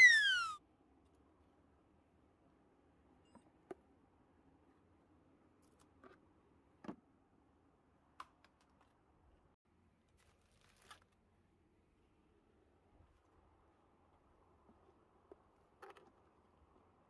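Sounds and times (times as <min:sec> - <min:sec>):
soft rustle: 0:10.0 - 0:11.3.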